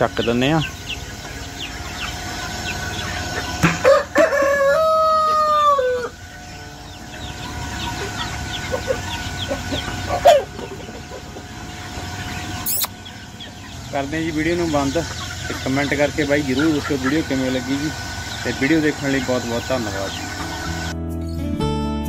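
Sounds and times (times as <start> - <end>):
chicks peeping: 0.0 - 21.0
rooster crowing: 3.5 - 6.6.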